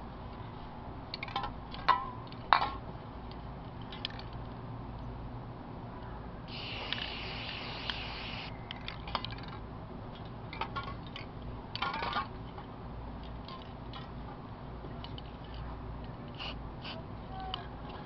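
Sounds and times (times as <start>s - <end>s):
spray paint can hissing: 6.5s - 8.5s, 16.3s - 17.0s.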